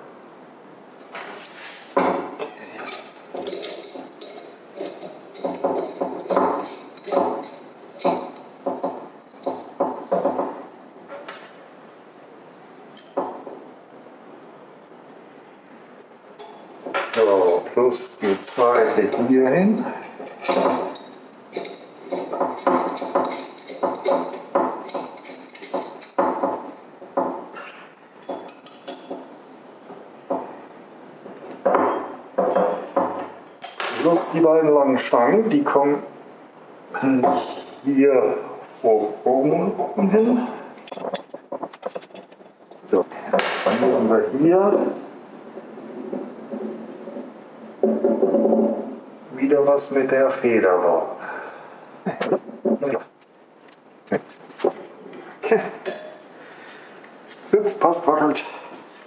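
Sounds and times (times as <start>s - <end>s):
metal parts knocking and clinking: 2.8s - 10.5s, 20.2s - 26.6s.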